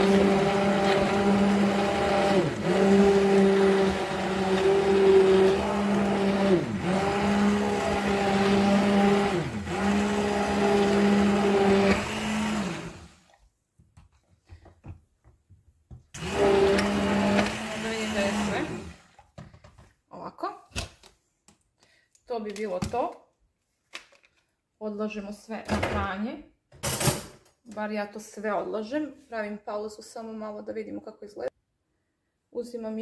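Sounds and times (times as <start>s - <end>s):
immersion blender motor hum: 0.0s - 13.3s, 16.2s - 19.0s.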